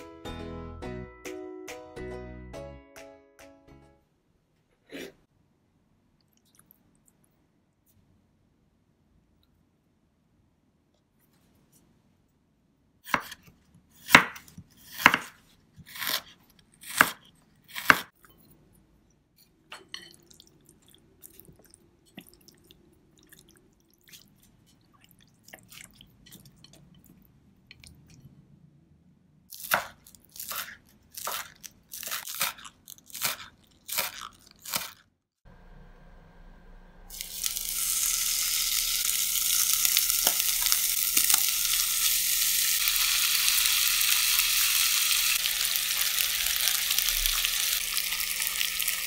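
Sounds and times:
wet squishing with chopsticks: 20.0 - 28.3.

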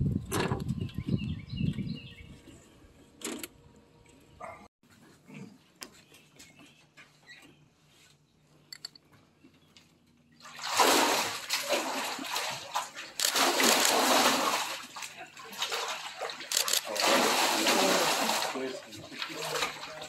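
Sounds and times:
water splashing and sloshing: 10.3 - 20.0.

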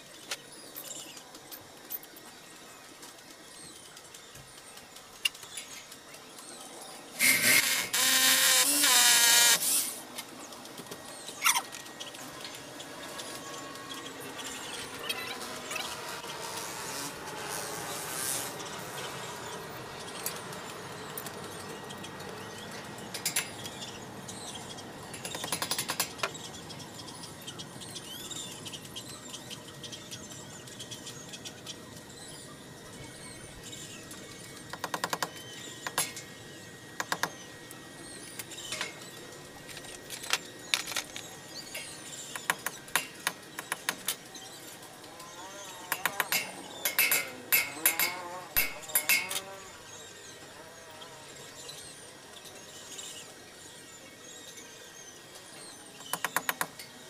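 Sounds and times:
tool tapping on metal railing: 45.9 - 49.4.

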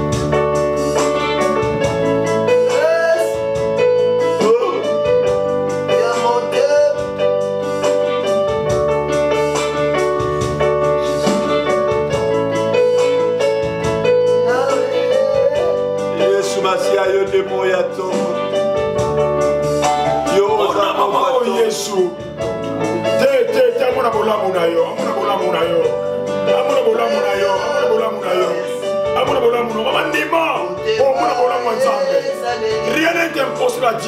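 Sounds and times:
electronic keyboard chords: 0.0 - 34.0.

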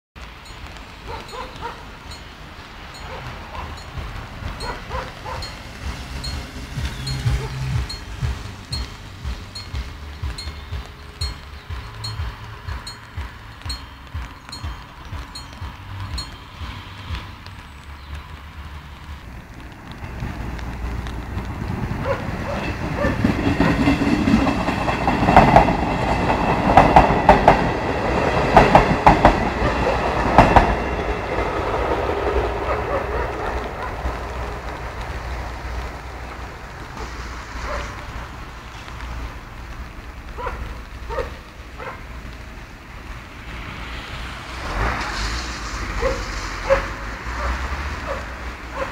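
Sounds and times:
train wheels clattering over rails: 0.3 - 17.5, 19.6 - 39.4.

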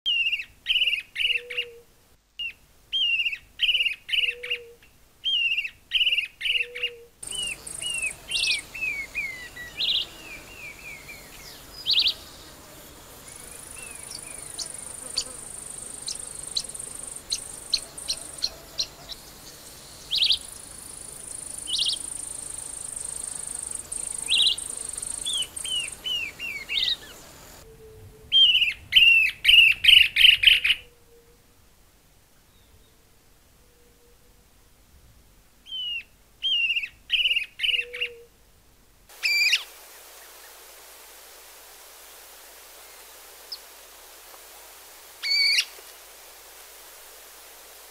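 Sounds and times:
hissy background: 0.1 - 47.9
bird whistled song: 2.4 - 12.3, 13.3 - 27.2, 27.8 - 30.9, 35.7 - 38.3.

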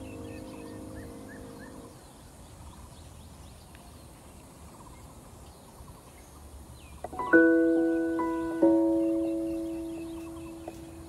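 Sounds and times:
background music: 0.0 - 1.9, 7.2 - 11.0
bird chirps and trills: 0.0 - 11.0.

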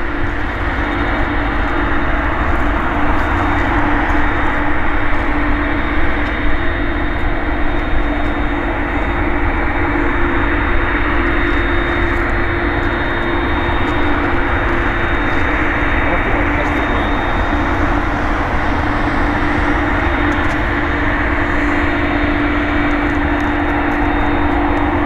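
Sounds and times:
jet engines running loudly: 0.0 - 25.0.

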